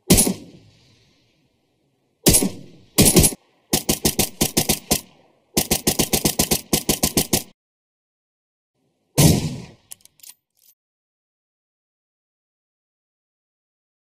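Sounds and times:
video game automatic gunfire: 0:05.6 - 0:07.5
heavy single gunshot: 0:09.2 - 0:09.8.

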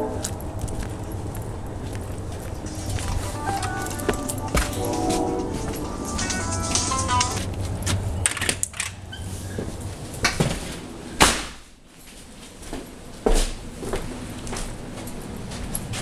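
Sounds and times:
low hum: 0:00.0 - 0:08.7
steady background noise: 0:00.0 - 0:16.0.

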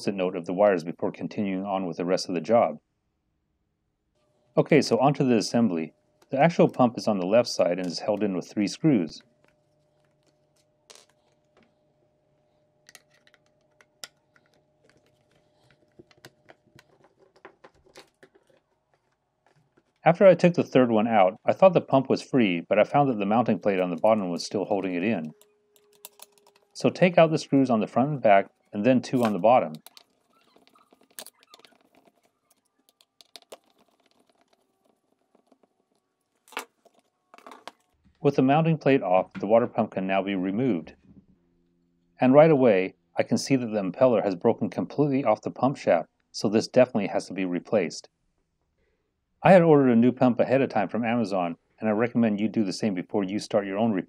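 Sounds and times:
plastic parts handled: 0:09.2 - 0:11.8, 0:12.8 - 0:20.1, 0:23.3 - 0:38.1.

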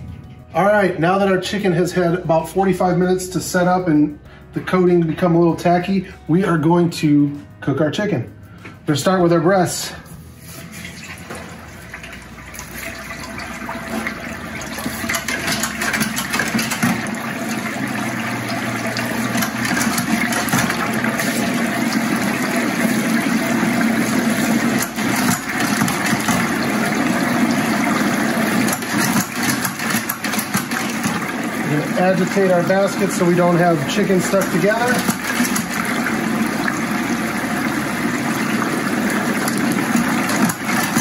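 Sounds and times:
hot oil sizzling and bubbling: 0:12.2 - 0:32.6, 0:33.8 - 0:41.0.

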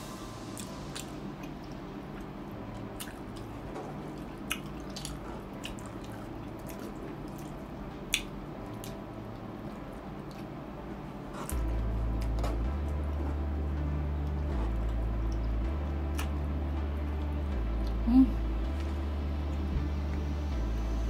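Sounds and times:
wet chewing and mouth smacks: 0:04.1 - 0:09.0.

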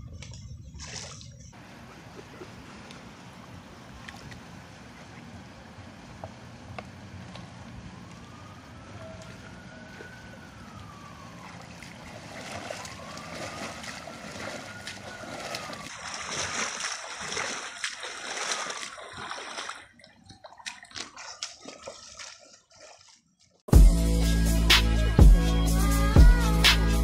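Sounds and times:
water sloshing and splashing: 0:00.0 - 0:23.7.

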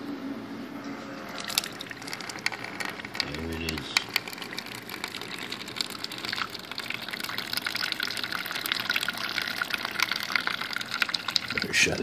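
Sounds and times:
liquid pouring into mug: 0:01.2 - 0:12.0.

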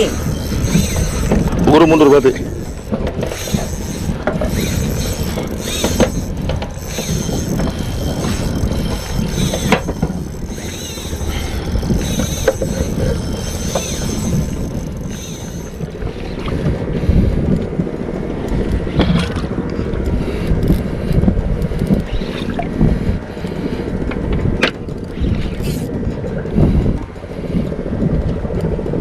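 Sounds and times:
fishing reel cranking: 0:00.0 - 0:16.6, 0:24.8 - 0:26.0
water moving around boat: 0:00.0 - 0:29.0
wind on microphone: 0:00.0 - 0:29.0.

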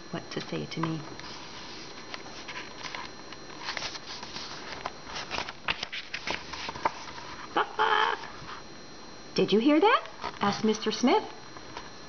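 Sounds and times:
book pages turning: 0:00.8 - 0:07.5.

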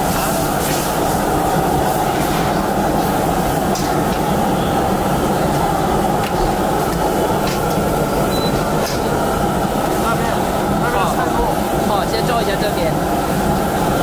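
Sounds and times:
rumbling din of busy street: 0:00.0 - 0:14.0.

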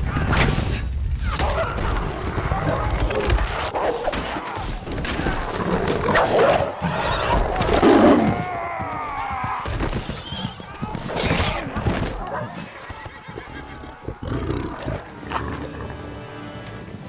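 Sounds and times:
horses whinnying: 0:05.5 - 0:16.1
orchestral music: 0:13.6 - 0:17.0.

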